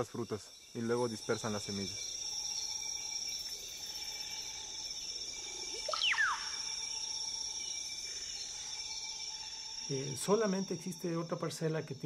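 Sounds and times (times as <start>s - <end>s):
high-pitched insect drone: 0.0s - 12.0s
whistled animal call: 5.8s - 6.7s.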